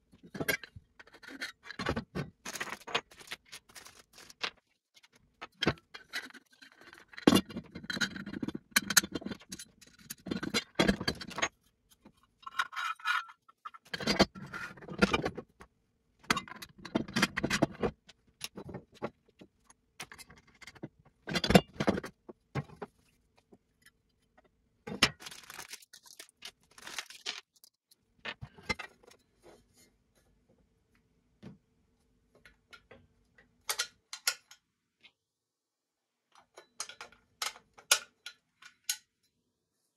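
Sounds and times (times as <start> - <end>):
plastic bag crinkling: 3.1 - 4.4, 25.1 - 27.8
metal bolts and nuts clinking: 12.4 - 15.4.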